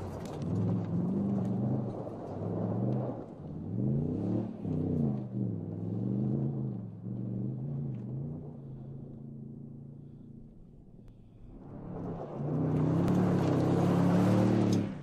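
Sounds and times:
pickup truck engine revving: 0.0s - 10.5s, 11.5s - 15.0s.

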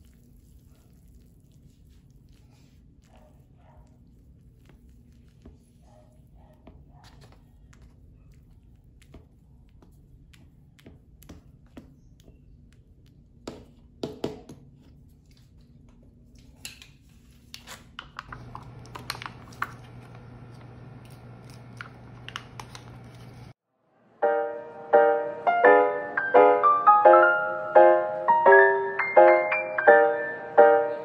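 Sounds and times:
wooden utensil tapping paper cup: 13.4s - 14.7s.

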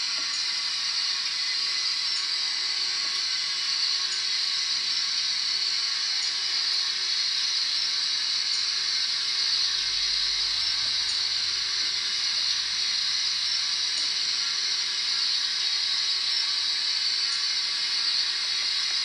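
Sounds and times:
steam hiss from small speaker: 0.0s - 19.0s.

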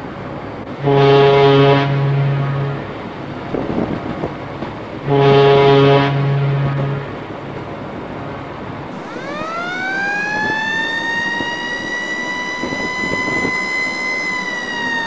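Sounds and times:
high horn tone rising in pitch: 0.8s - 3.1s, 5.0s - 7.2s, 9.0s - 15.0s.

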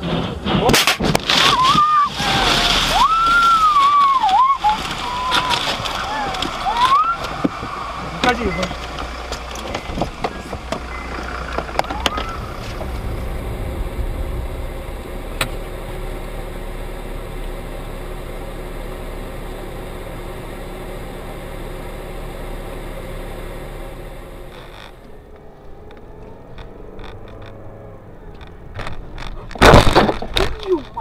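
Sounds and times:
car engine and road noise: 0.0s - 31.0s.

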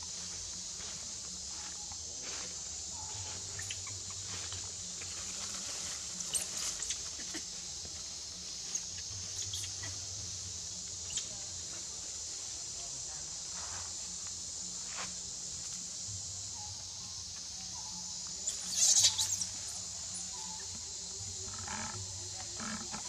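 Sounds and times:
steady high hiss: 0.0s - 23.0s
monkeys rustling in branches: 1.6s - 10.0s.

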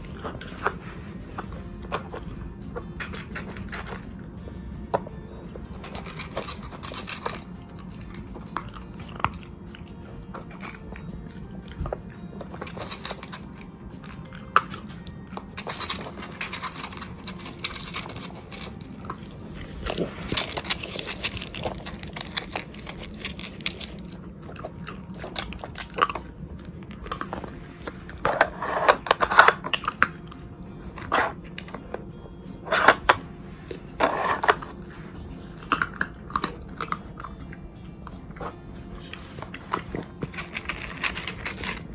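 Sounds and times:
dog crunching and chewing: 0.0s - 41.9s
plastic clacks and scrapes: 33.8s - 34.8s.

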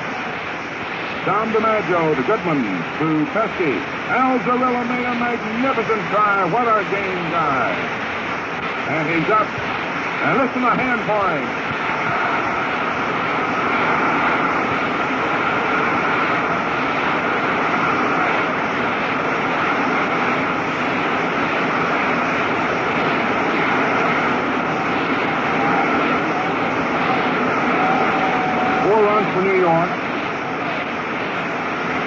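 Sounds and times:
crowd applauding and cheering: 21.3s - 32.0s.

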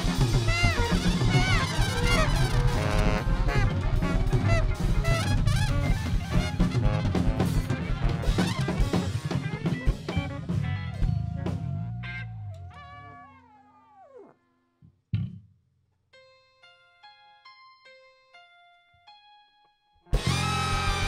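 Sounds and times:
drum kit: 0.0s - 12.2s, 20.1s - 21.0s
horn band playing: 0.0s - 12.4s, 20.1s - 21.0s.

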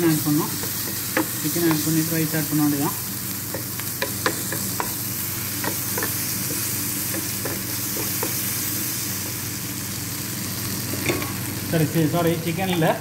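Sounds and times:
vegetables sizzling in oil: 0.0s - 13.0s
spatula scraping and tapping pan: 3.5s - 5.0s, 5.6s - 8.4s.

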